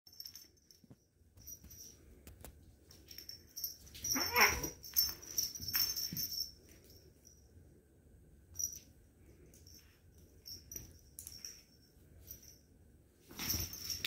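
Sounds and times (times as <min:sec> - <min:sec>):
cat crying: 0:04.1 - 0:04.8.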